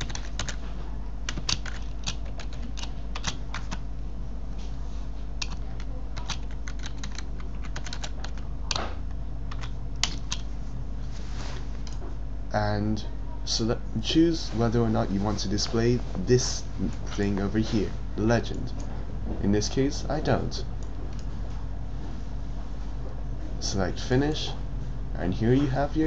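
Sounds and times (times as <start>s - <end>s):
keyboard typing: 0.0s - 0.6s, 1.3s - 3.8s, 5.4s - 8.8s, 9.5s - 10.5s
low electrical hum: 0.0s - 26.0s.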